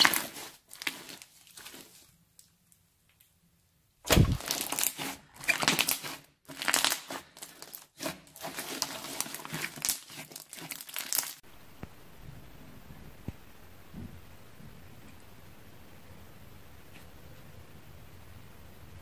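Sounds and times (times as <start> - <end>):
slime crackling: 0.0 - 2.8, 4.1 - 11.4
faint steady hiss: 11.4 - 19.0.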